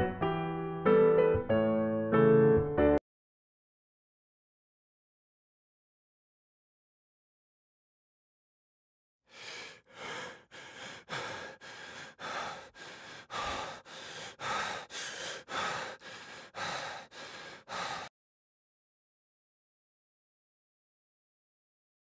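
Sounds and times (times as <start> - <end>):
person breathing hard and fast: 9.3 - 18.1.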